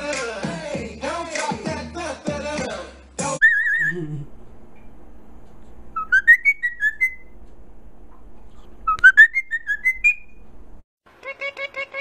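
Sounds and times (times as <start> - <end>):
cockatiel whistling a tune: 3.4 - 3.9, 6.0 - 7.4, 8.9 - 10.4.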